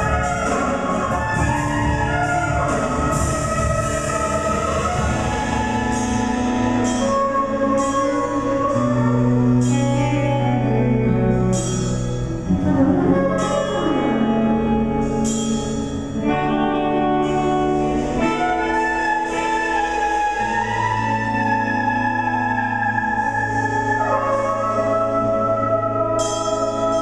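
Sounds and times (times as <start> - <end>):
low bass line: 0.0 - 27.0
small band playing: 0.0 - 27.0.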